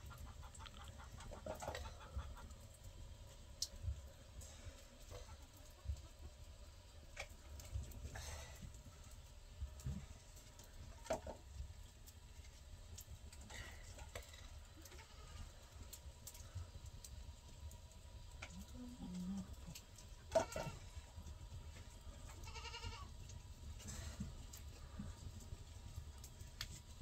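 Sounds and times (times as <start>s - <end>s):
wood fire crackling: 0.0s - 27.0s
livestock bleating: 22.4s - 23.1s.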